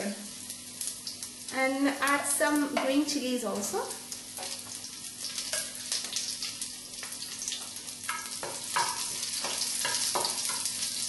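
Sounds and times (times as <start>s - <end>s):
food sizzling in oil: 0.0s - 11.0s.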